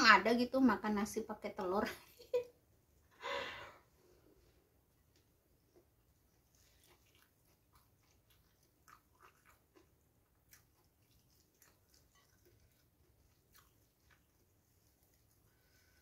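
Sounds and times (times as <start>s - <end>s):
faint chewing with mouth clicks: 4.3s - 16.0s.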